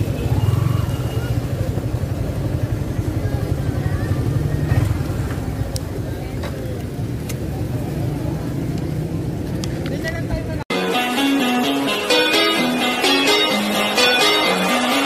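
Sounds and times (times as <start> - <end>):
motorcycle engine running: 0.0 - 10.6
faint voices: 0.7 - 10.7.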